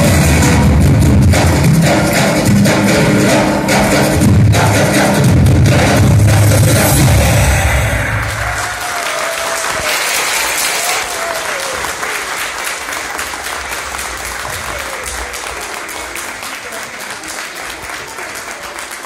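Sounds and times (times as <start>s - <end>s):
dance music: 0.0s - 8.8s
audience applauding: 8.2s - 19.0s.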